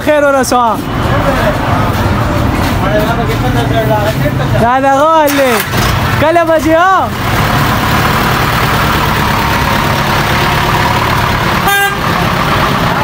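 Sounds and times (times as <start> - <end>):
street noise: 0.0 - 13.0
vehicle engine: 0.0 - 13.0
vehicle horn toot: 11.6 - 12.1.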